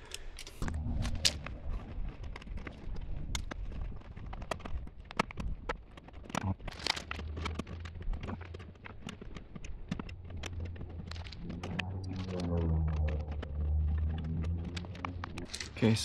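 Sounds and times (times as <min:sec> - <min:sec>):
low steady hum: 0:00.6 - 0:02.0, 0:09.9 - 0:16.0.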